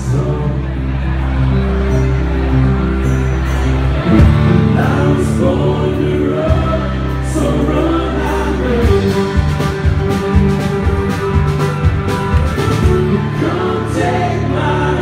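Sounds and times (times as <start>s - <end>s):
live band playing: 0.0s - 15.0s
voices singing together: 4.2s - 9.5s, 12.5s - 15.0s.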